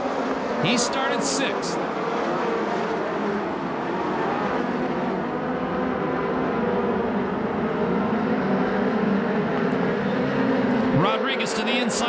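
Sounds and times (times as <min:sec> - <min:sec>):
race car engines running hard: 0:00.0 - 0:12.0.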